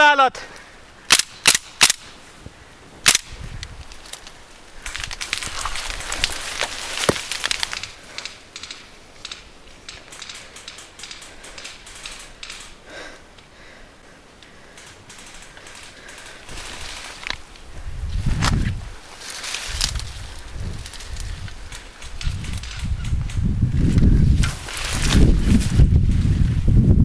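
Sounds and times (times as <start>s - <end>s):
rustling of dry brush: 2.1s - 9.0s, 14.6s - 26.8s
light clicks: 7.4s - 13.5s, 20.8s - 23.5s.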